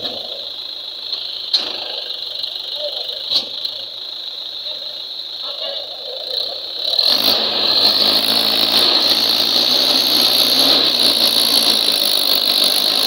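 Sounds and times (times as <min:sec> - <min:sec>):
tractor diesel engine straining: 0:06.7 - 0:13.0.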